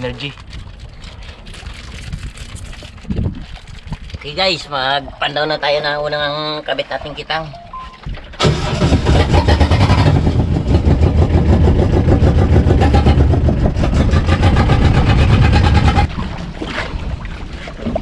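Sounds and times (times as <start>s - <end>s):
small boat engine running: 7.8s - 16.7s.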